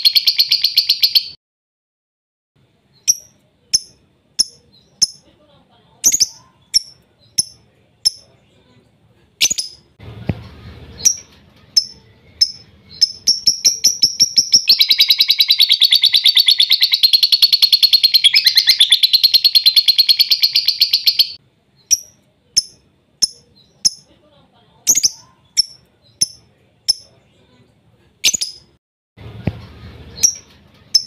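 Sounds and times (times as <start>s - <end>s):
lovebird chirping and trilling: 0.0s - 1.4s, 2.9s - 5.3s, 6.0s - 8.3s, 9.4s - 10.0s, 10.9s - 24.1s, 24.9s - 27.2s, 28.2s - 28.8s, 30.0s - 31.0s.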